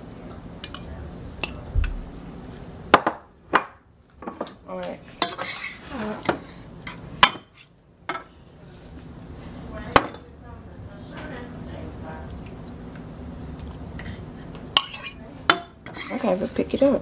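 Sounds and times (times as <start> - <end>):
utensils clinking on pan and bowl: 0.6 - 2.1, 5.2 - 8.3, 14.8 - 16.9.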